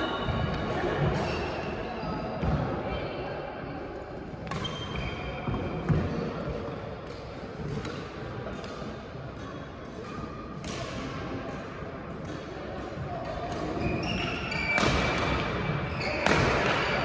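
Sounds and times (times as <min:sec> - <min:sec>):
racket hitting shuttlecock: 0:07.0 - 0:17.0.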